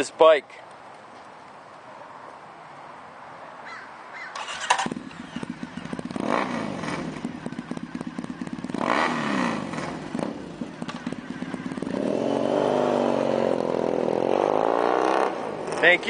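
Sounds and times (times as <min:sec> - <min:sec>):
motorcycle engine starting and revving: 0:04.3 - 0:16.0.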